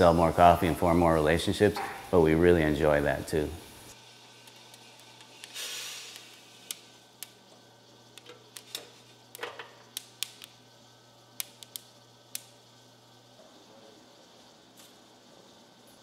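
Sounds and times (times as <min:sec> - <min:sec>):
coffee beans crackling and popping: 0:03.9 - 0:12.7.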